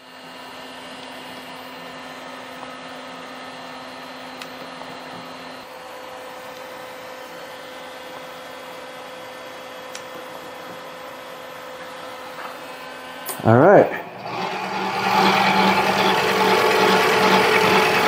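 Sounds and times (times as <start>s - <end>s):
lathe motor humming: 11.3s - 18.0s.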